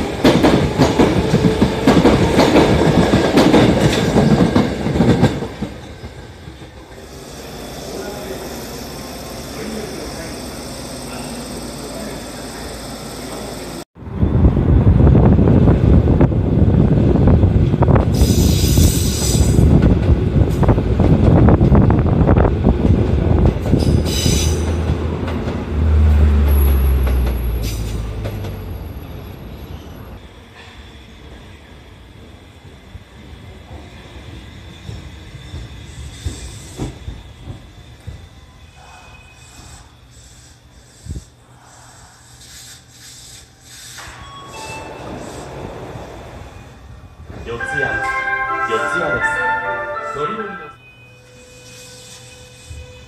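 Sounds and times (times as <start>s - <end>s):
train wheels rumbling and clicking: 0.0s - 8.4s, 14.7s - 31.4s, 32.6s - 38.6s
air hissing bursts: 18.1s - 19.6s, 39.4s - 45.7s
high-pitched wheel squeals: 50.7s - 53.0s.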